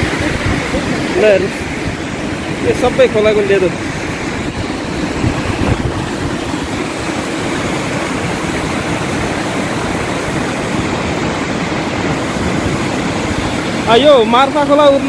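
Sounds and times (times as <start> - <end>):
river rushing over rocks: 0.0 - 15.0.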